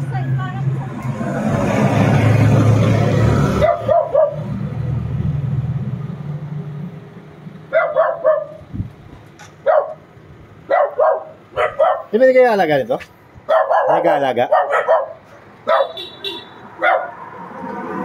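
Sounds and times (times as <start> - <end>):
vehicle passing: 0.0 - 18.0
dog barking: 3.6 - 4.5, 7.7 - 8.6, 9.6 - 10.0, 10.7 - 12.2, 13.5 - 16.1, 16.8 - 17.2.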